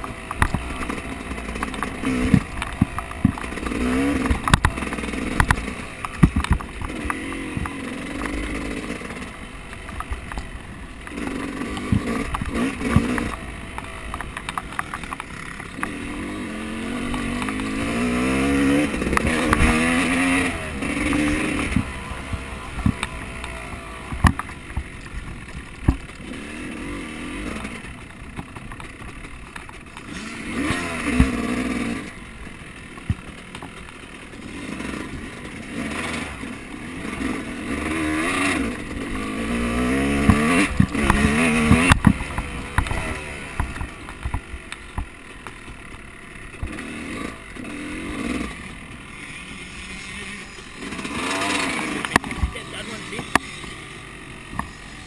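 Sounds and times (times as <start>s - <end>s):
sharp knocks and clatters: 0.0s - 16.4s, 22.8s - 26.4s, 39.2s - 45.8s
off-road vehicle engine revving: 0.0s - 55.0s.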